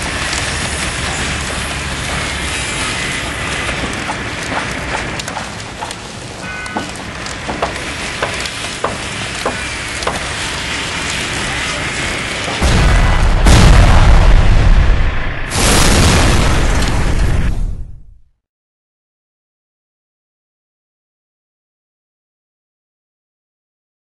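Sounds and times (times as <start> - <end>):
fire crackling: 0.0 - 18.2
deep rumbling boom: 12.5 - 18.2.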